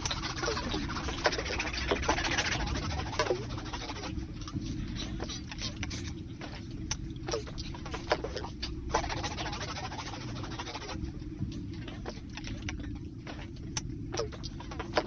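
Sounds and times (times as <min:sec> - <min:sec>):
pencils scratching on paper: 0:00.0 - 0:06.7, 0:07.3 - 0:11.0
steady low rumble: 0:00.0 - 0:15.0.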